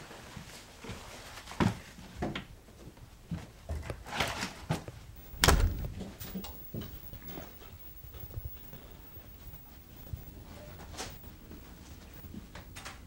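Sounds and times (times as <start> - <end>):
door shutting with heavy thud: 5.2 - 6.8
knocks of people moving: 5.2 - 13.0.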